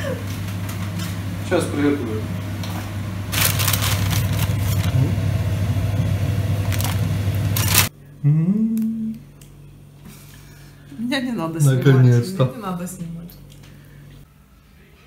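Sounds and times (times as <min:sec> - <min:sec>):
person humming mmm: 0:08.0 - 0:09.5.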